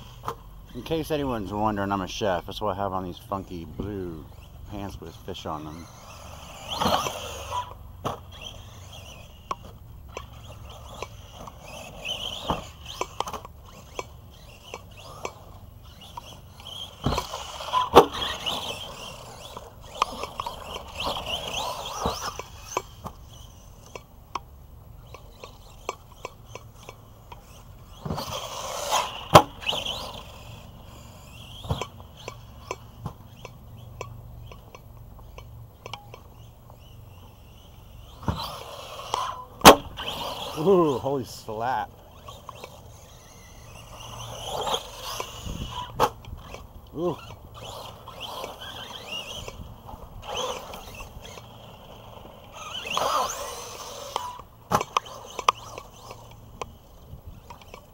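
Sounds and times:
electric motor and gears whining: 0.0s - 57.9s
tyres on dirt: 0.0s - 57.9s.

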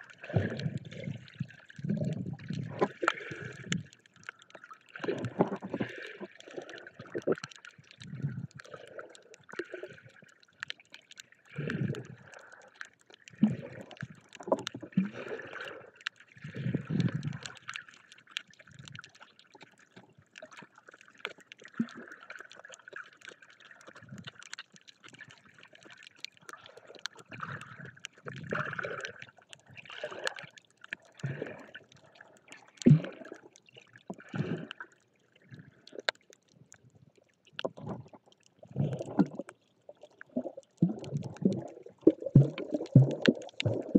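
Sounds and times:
small crackles: 0.0s - 43.9s
water sloshing and gurgling underwater: 0.0s - 43.9s.

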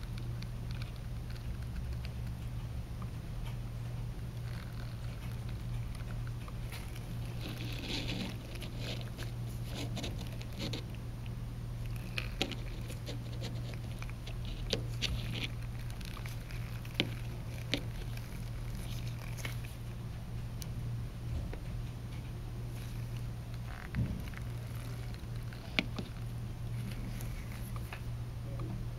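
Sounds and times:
steady low hum: 0.0s - 28.9s
light rubbing of metal part: 4.4s - 10.9s.

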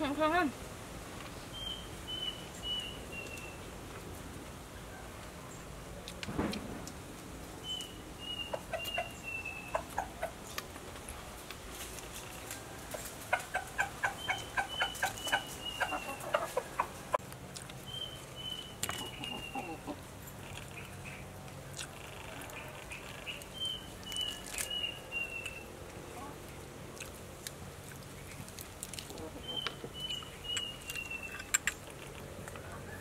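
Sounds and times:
small bird calling: 7.6s - 10.6s, 13.6s - 17.0s, 17.9s - 21.3s
hens clucking: 8.2s - 10.8s, 12.2s - 17.2s, 18.9s - 21.0s, 29.0s - 30.6s.

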